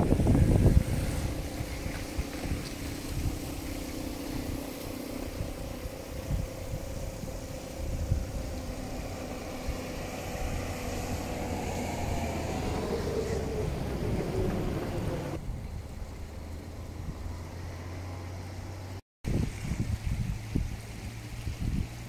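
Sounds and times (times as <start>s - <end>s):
wind buffeting microphone: 0.0s - 22.0s.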